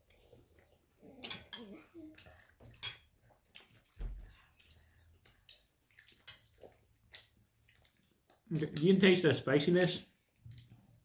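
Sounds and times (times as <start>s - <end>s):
wet chewing mouth clicks: 2.1s - 8.9s.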